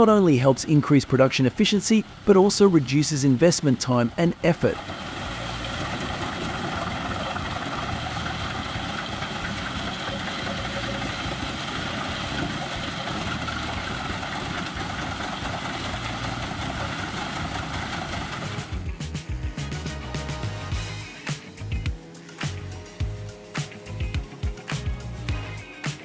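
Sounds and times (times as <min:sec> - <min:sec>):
engine drone: 0:00.0 - 0:26.0
wood chipper chipping logs: 0:04.7 - 0:19.1.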